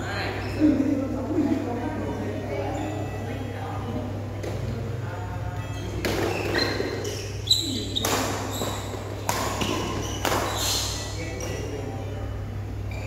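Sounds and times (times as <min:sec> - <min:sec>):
racket hitting shuttlecock: 0:06.0 - 0:07.2, 0:07.9 - 0:11.0.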